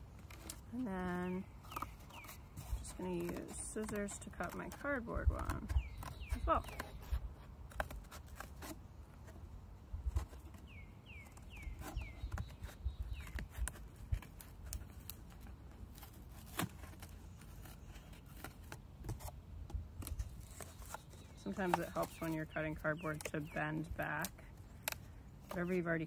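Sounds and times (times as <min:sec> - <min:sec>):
scissors snipping cardboard: 0:01.7 - 0:07.1.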